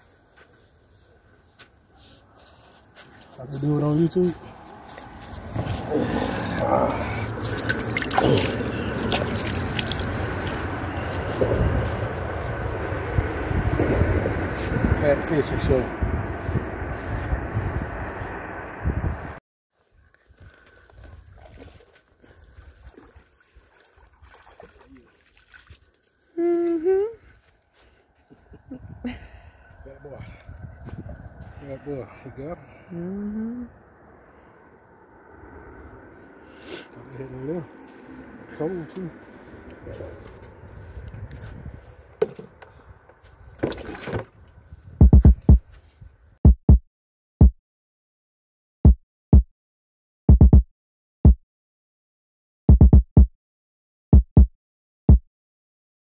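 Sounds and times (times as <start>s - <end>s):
fish splashing in water: 5.8s - 11.4s, 20.5s - 26.1s
dull thumps on microphone: 45.0s - 45.7s.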